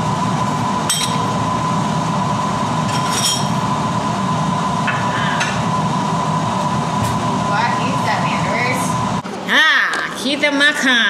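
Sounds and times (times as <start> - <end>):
range hood exhaust fan whining: 0.0 - 11.0
dishes clinking: 0.9 - 1.3, 2.9 - 3.6.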